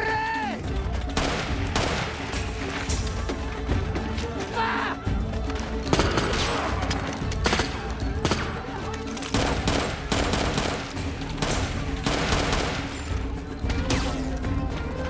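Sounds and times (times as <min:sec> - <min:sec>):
rifle gunfire: 0:09.3 - 0:12.9.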